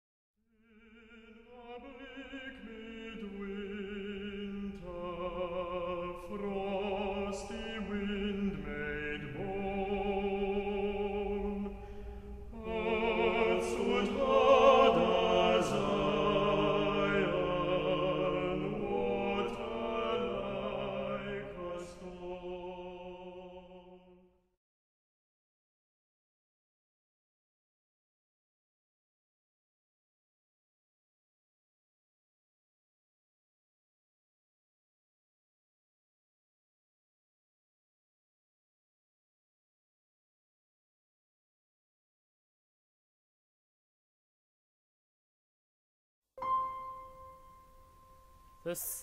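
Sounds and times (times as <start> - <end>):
choir singing with vibrato: 0.6 - 24.3.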